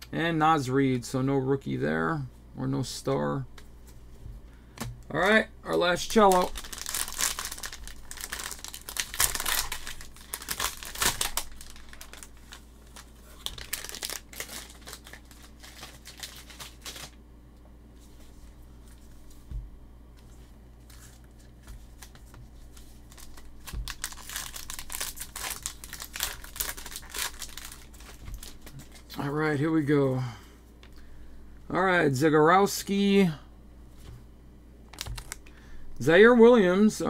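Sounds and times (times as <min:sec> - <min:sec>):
plastic wrapper crinkling: 0:05.1 - 0:17.2, 0:20.8 - 0:29.3, 0:34.9 - 0:35.5.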